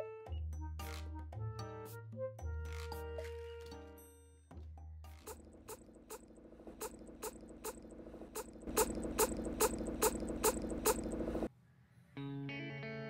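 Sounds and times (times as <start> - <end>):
regular clicks: 5.0 - 11.5
motor hum: 5.1 - 11.5.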